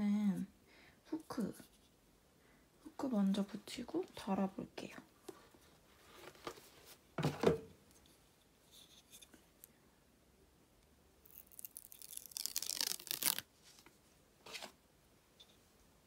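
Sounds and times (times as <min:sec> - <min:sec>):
adhesive liner peeling: 0:11.2 - 0:13.4.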